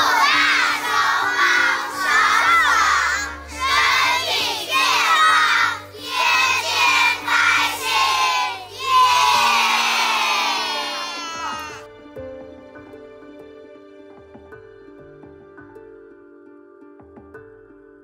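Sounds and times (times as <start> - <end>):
children shouting in unison: 0.0 - 11.8
soft background music: 0.0 - 18.0.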